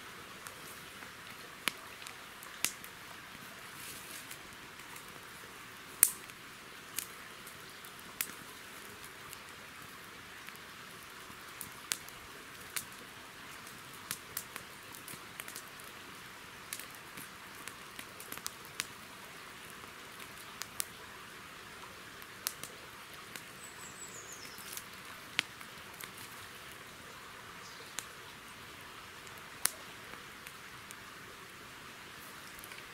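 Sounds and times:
campfire crackling and popping: 0.0 - 32.9
bird chirp: 23.6 - 24.7.

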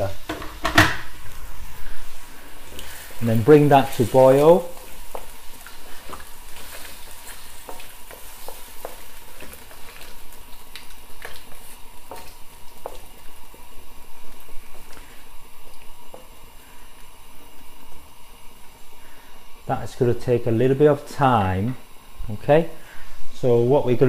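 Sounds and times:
food sizzling in a wok: 0.0 - 24.0
wooden spatula scraping a wok: 1.6 - 13.6.

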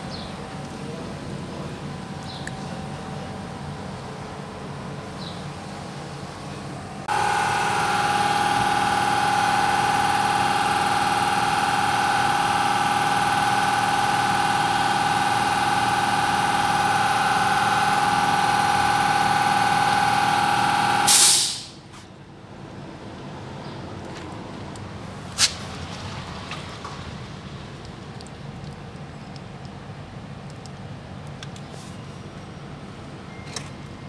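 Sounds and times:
steady machine whine: 6.8 - 21.3
short loud burst of noise: 21.0 - 21.8.

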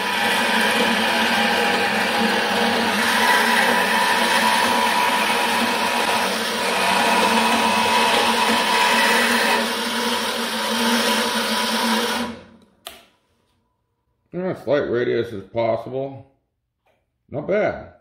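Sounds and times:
band saw cutting metal: 0.0 - 12.6.

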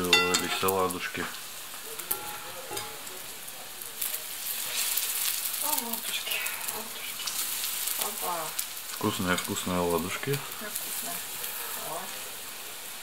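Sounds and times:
pancakes sizzling in oil: 0.0 - 13.0.

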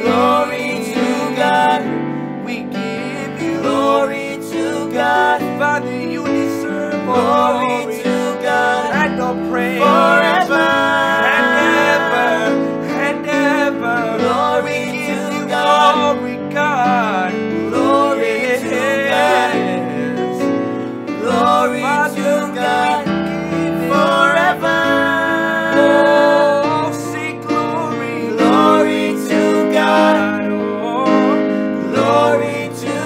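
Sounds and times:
people singing together: 0.0 - 33.0.

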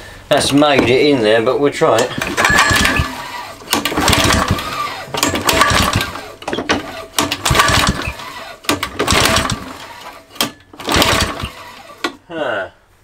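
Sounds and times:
lawn mower engine cranking: 1.8 - 12.2.

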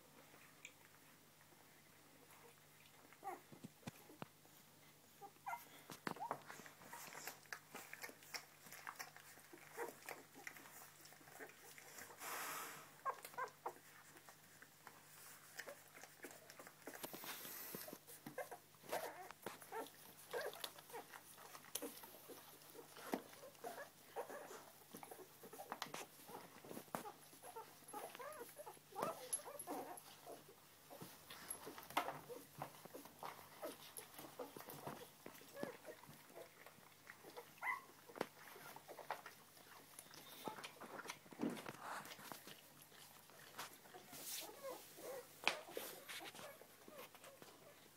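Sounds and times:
small clicks and rustles: 0.0 - 12.2, 13.0 - 47.9
puppies squeaking and whimpering: 5.1 - 12.2, 15.2 - 47.9.

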